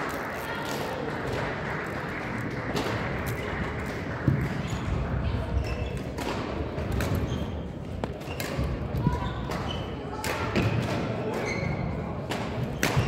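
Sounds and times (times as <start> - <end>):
murmur of voices: 0.0 - 13.0
badminton clicks and thuds: 5.6 - 11.6, 12.2 - 13.0.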